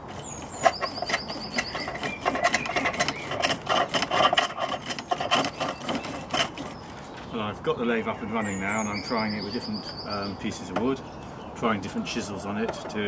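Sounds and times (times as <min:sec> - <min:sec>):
chisel scraping and shaving wood: 0:00.0 - 0:07.0.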